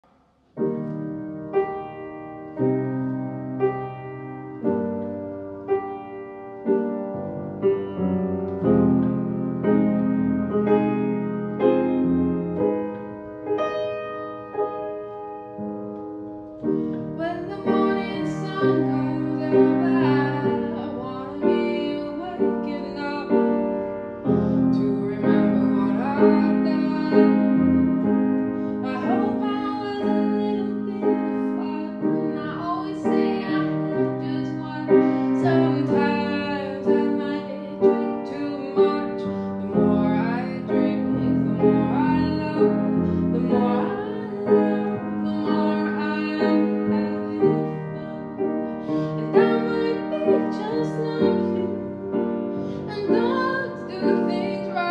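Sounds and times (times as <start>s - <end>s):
grand piano chords: 0.0s - 54.9s
woman singing: 17.1s - 28.2s, 28.8s - 54.9s.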